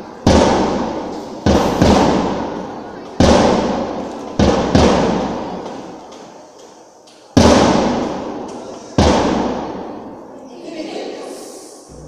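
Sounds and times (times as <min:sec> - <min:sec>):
loud echoing bangs: 0:00.0 - 0:06.0, 0:07.4 - 0:10.2.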